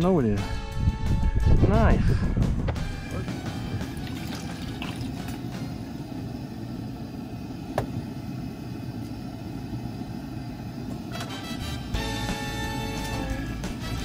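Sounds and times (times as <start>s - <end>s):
gas burner rumbling: 0.0s - 14.0s
liquid bubbling: 3.7s - 5.8s.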